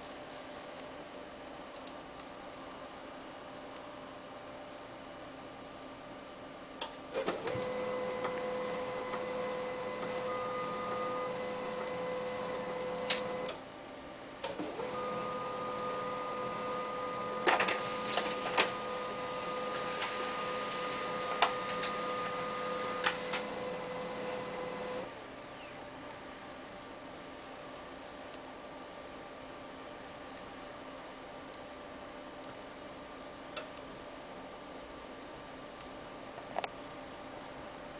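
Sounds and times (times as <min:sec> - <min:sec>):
laser printer whine: 0:07.1 - 0:13.8, 0:14.4 - 0:27.4
printer mechanism clicks: 0:12.8 - 0:13.6.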